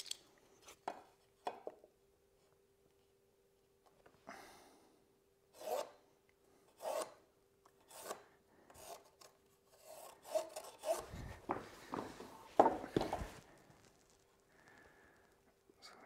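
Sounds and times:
low shuffle: 0:11.0 - 0:14.4.

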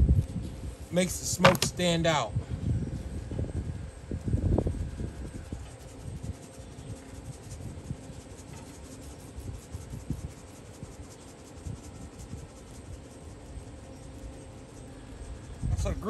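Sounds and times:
low handling knocks: 0:01.4 - 0:01.8.

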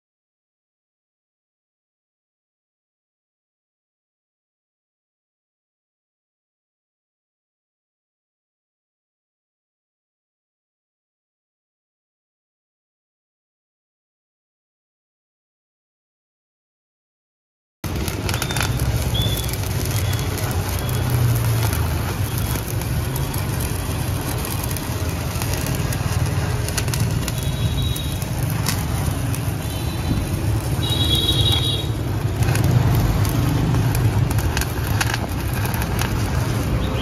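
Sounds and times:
welding arc crackling: 0:17.8 - 0:37.0.

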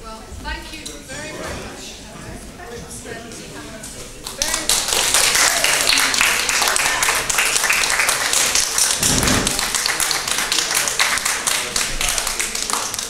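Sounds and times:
audience applauding: 0:04.2 - 0:13.0
dull low thump: 0:09.0 - 0:09.7.

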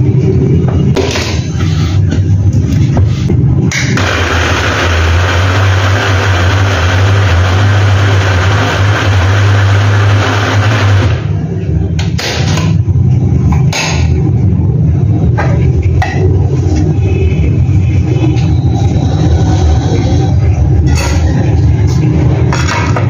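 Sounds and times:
food processor motor whirring: 0:04.0 - 0:11.3.

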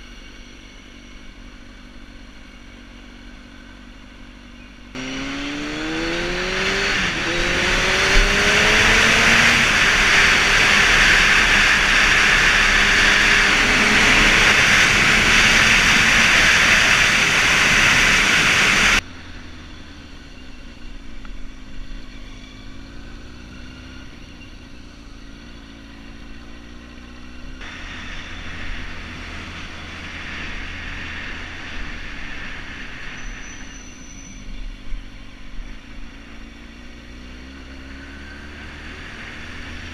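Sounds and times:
motorcycle engine accelerating: 0:00.0 - 0:39.9
wind rushing on microphone: 0:06.4 - 0:19.0.

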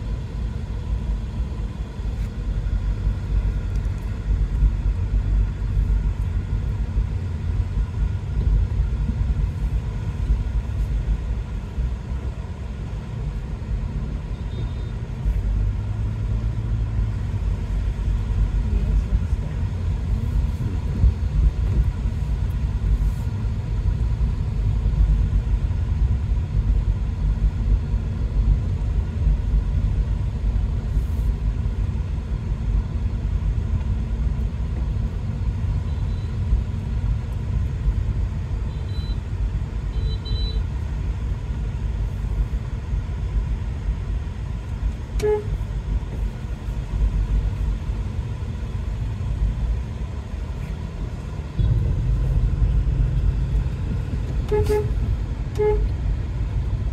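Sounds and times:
car engine rumble: 0:00.0 - 0:56.9
road noise: 0:00.0 - 0:56.9
faint horn beeps: 0:14.3 - 0:15.0, 0:35.8 - 0:36.3, 0:38.7 - 0:39.2, 0:39.9 - 0:40.7, 0:45.2 - 0:45.6, 0:54.4 - 0:55.9.

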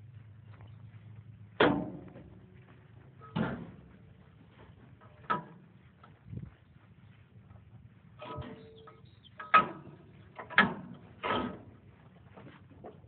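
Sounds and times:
low steady hum: 0:00.0 - 0:13.0
sharp ringing knocks: 0:08.2 - 0:11.6.

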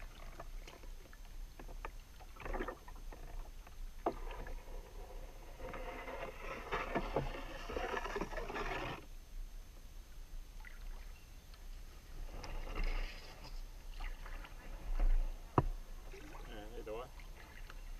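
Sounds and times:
paddle water splashing and dripping: 0:00.0 - 0:04.9, 0:10.5 - 0:11.7, 0:13.8 - 0:17.9.

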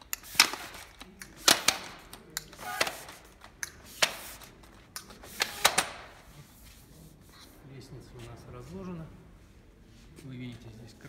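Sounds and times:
ladder sections sliding out: 0:05.2 - 0:06.0.

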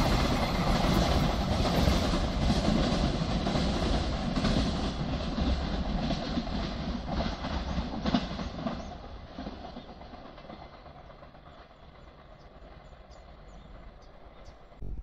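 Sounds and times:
sharp clacks of train wheels: 0:00.0 - 0:14.8
train wagons rumbling on rails: 0:00.0 - 0:14.9.

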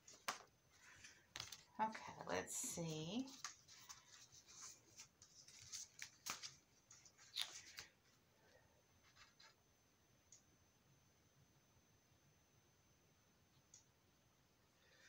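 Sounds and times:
paper envelopes rustling: 0:00.0 - 0:08.2.

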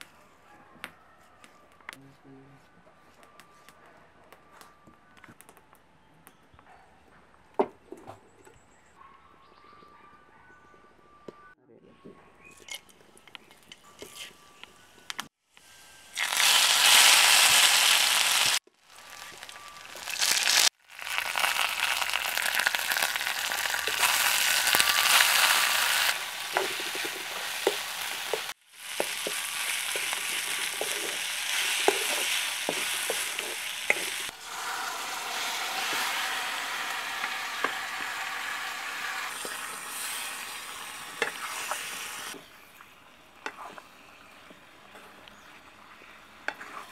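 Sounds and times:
food sizzling in hot oil: 0:15.6 - 0:42.4
spoon scraping metal pot: 0:24.8 - 0:36.2.

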